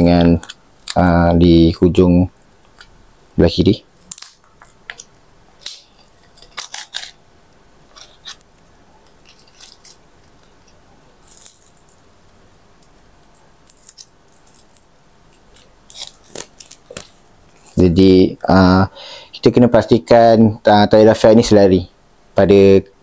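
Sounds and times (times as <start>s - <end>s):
plastic string crinkling: 2.4s - 7.2s, 7.9s - 18.0s.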